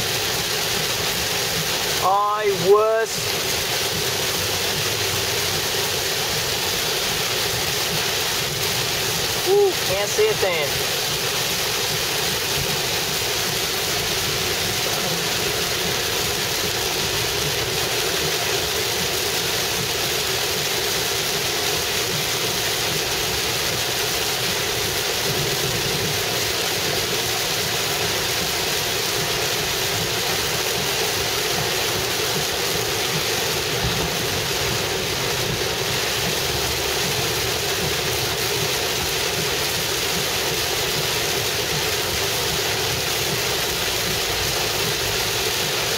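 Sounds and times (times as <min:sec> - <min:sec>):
heavy rain pelting a car: 0:00.0 - 0:45.9
tyre spray on wet road: 0:00.0 - 0:45.9.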